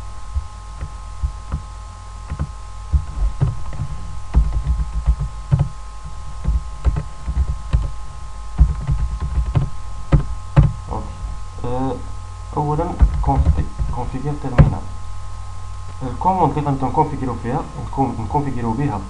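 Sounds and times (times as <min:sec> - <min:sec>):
steady electrical hum: 0:00.0 - 0:19.0
keyboard typing: 0:00.3 - 0:01.7, 0:02.3 - 0:08.0, 0:08.6 - 0:10.8, 0:13.0 - 0:14.0.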